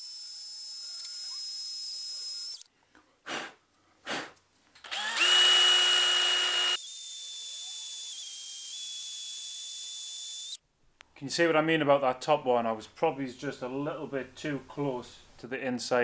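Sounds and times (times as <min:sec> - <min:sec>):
cordless drill whining: 0:00.0 - 0:02.6, 0:04.8 - 0:10.6.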